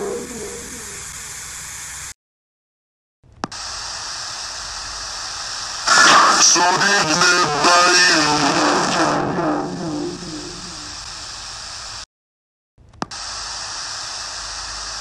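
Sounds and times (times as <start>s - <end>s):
distorted static hiss: 0.0s - 2.1s, 3.5s - 12.1s, 13.1s - 15.0s.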